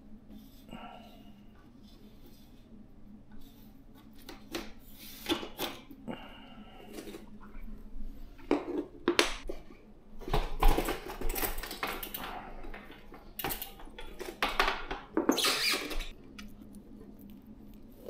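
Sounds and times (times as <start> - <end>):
metal bike parts clicking: 13.4 - 14.8.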